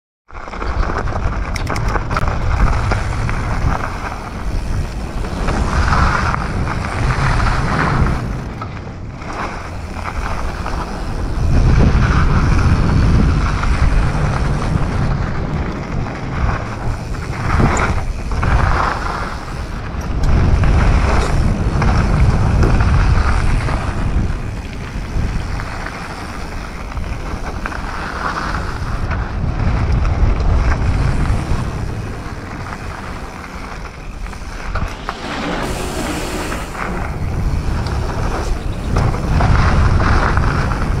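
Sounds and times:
bike tyres rolling on trail: 0.3s - 41.0s
wind buffeting microphone: 0.5s - 41.0s.

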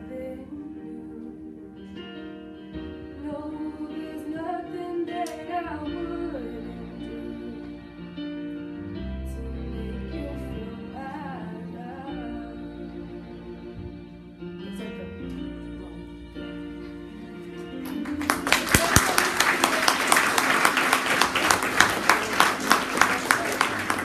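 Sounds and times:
woman singing slow song: 0.0s - 1.7s, 3.2s - 7.8s
instrumental accompaniment: 0.0s - 24.0s.

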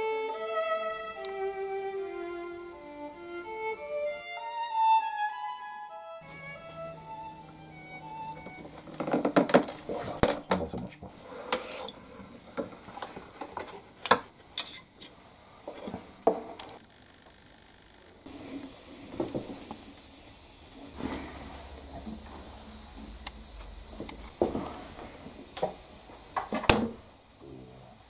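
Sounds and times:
faint steady hiss: 0.9s - 4.2s, 6.2s - 28.0s
wood pieces knocking on base: 8.7s - 11.2s.

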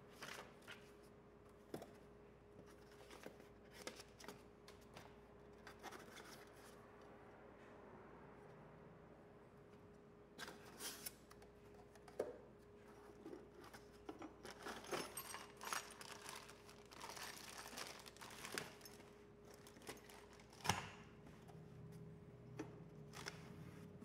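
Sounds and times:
plastic bag crinkling: 14.5s - 20.6s.

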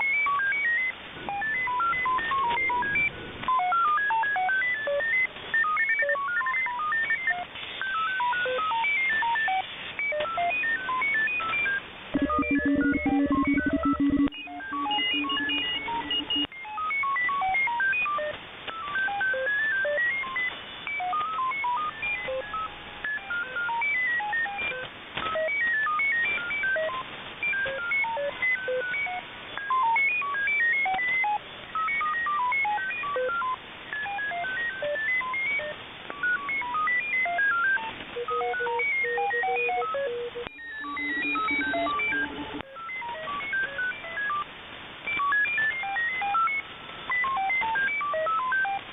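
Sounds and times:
digital radio beeps jumping in pitch: 0.0s - 18.3s, 18.9s - 44.5s
steady low tone: 12.2s - 16.5s.

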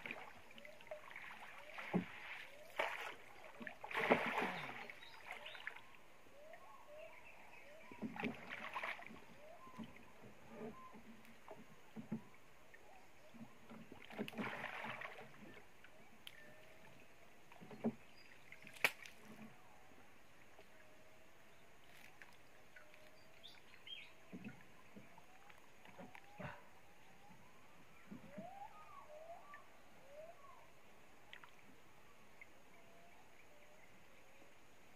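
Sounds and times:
water splashing beside canoe: 0.0s - 19.6s, 21.8s - 29.6s.

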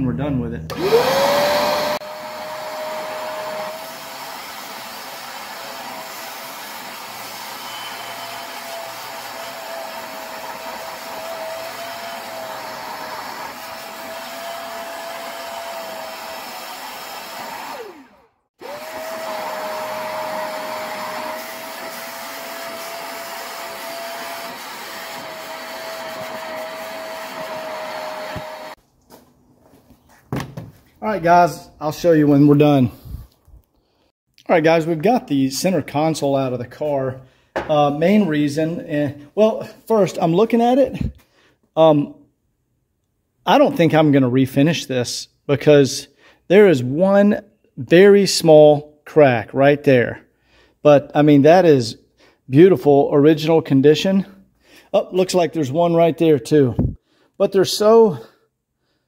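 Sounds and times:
carpet extractor motor whining: 0.7s - 28.8s.

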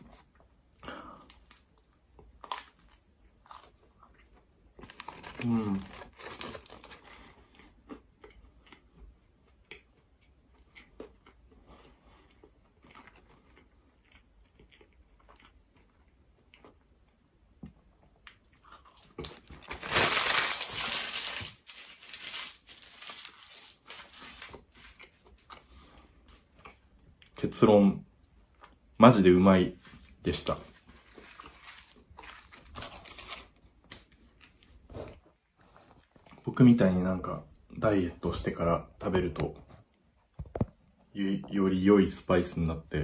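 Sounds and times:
chewing flaky croissant: 0.0s - 27.4s, 29.9s - 36.5s
paper bag crinkling: 4.8s - 7.2s, 19.2s - 25.0s, 30.3s - 33.5s.

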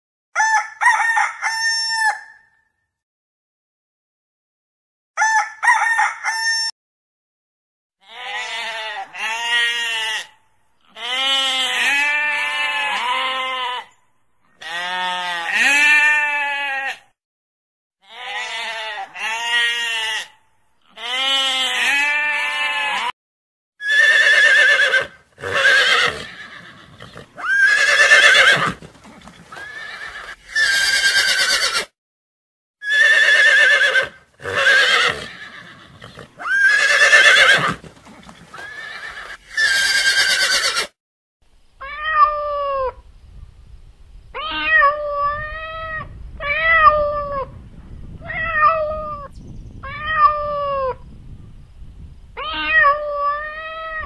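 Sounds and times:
goat bleating: 8.0s - 13.9s, 14.6s - 17.0s, 18.0s - 23.1s
horse whinnying: 23.8s - 31.9s, 32.8s - 41.0s
cat meowing: 41.8s - 43.0s, 44.4s - 47.5s, 48.2s - 51.0s, 52.4s - 54.0s.

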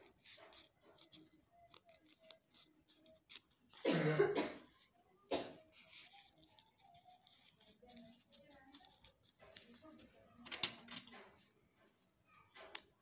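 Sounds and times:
paper handling clicks: 0.0s - 3.8s
person coughing: 3.8s - 4.7s, 5.3s - 5.6s
throat clearing: 3.8s - 4.7s.

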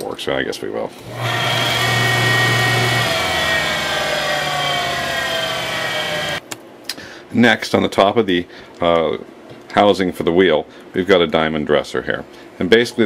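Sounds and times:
grinder motor hum and whine: 1.0s - 6.4s.

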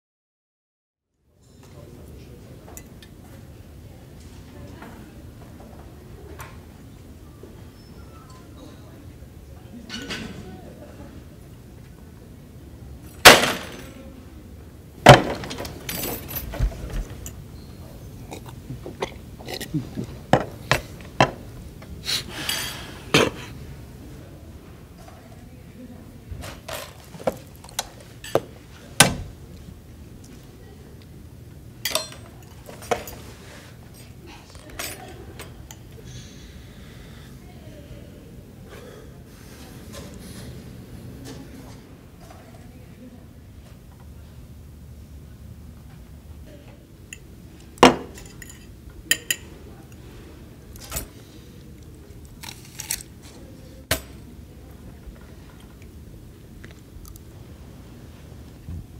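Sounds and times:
low room hum: 1.1s - 58.9s
cups knocking on trays: 20.3s - 21.4s
cutlery and dishes clinking: 26.4s - 28.5s, 31.8s - 33.3s, 47.1s - 49.6s, 50.8s - 51.2s.

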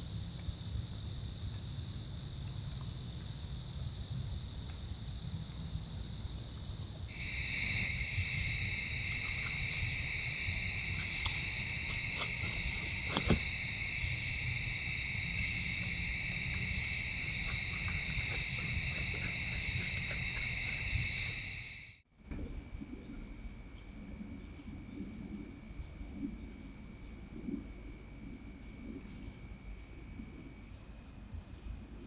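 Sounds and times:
high cricket trill: 0.0s - 22.0s
lower cricket trill: 0.0s - 32.0s.

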